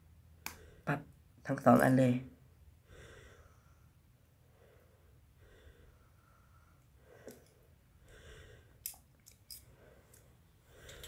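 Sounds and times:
soft breathing: 2.8s - 11.0s.

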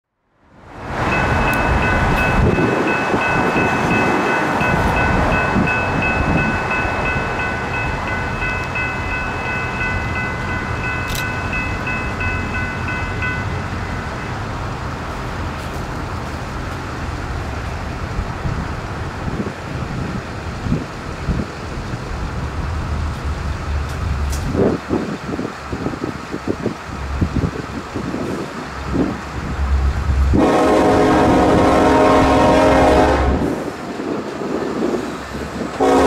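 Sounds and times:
wind: 0.0s - 36.0s
low rumble of road traffic: 0.2s - 36.0s
railroad crossing bell ringing: 1.1s - 15.1s, 29.4s - 33.1s, 35.8s - 36.0s.

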